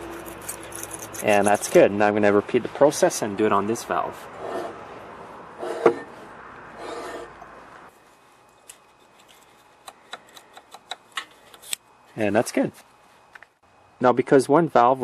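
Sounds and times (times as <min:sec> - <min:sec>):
metal blade scraping: 0:00.0 - 0:01.9, 0:06.8 - 0:07.4.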